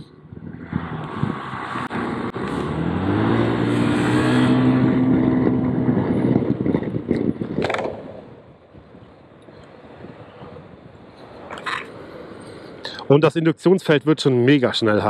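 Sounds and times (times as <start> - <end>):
wind rush on microphone: 0.0 - 12.8
scooter engine revving: 0.4 - 8.5.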